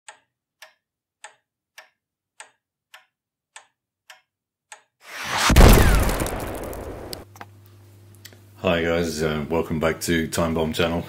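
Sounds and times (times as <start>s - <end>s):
clock ticking: 0.1s - 5.0s
loud explosion: 5.1s - 7.2s.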